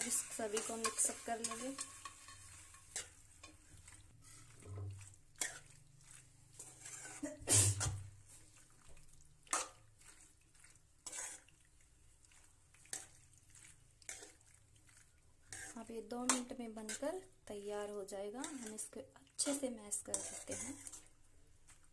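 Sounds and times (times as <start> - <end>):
metal spoon scraping pan: 0.0 - 8.1, 9.5 - 11.5, 12.8 - 14.4, 15.5 - 17.2, 18.4 - 21.1.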